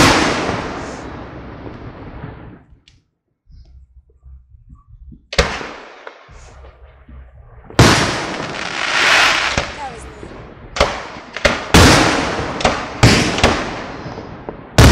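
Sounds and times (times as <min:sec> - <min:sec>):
sharp firework boom with echo: 0:00.0 - 0:02.8, 0:07.6 - 0:14.9.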